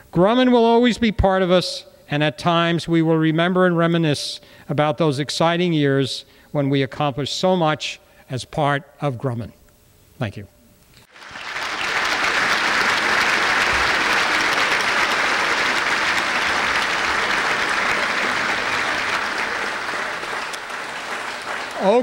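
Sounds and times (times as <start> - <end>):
audience applauding: 11.1 - 22.0.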